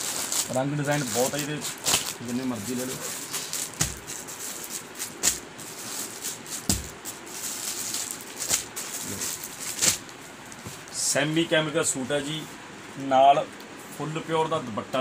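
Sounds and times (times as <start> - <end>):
plastic packets crinkling: 0.0 - 11.1.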